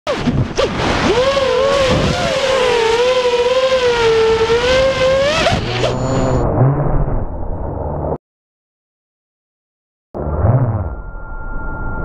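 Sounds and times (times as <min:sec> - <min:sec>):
quadcopter motors whining: 0:01.1 - 0:06.4.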